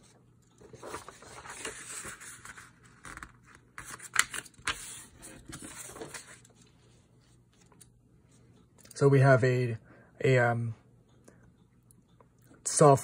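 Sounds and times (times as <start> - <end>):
paper sliding and rustling: 0.6 - 6.6.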